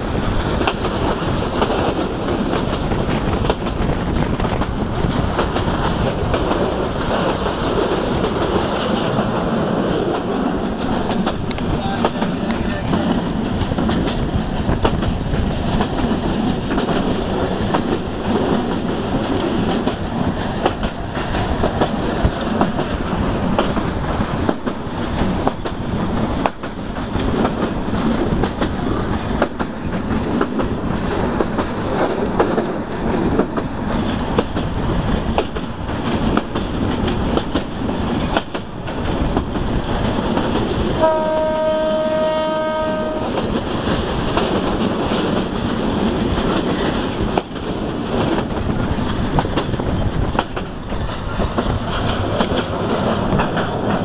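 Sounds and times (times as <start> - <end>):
train wheels rumbling on rails: 0.0 - 54.0
train horn blast: 41.0 - 43.4.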